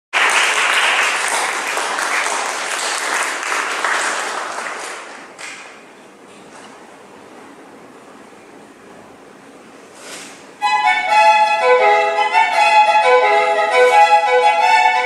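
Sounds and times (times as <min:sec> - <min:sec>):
audience applauding: 0:00.1 - 0:05.8.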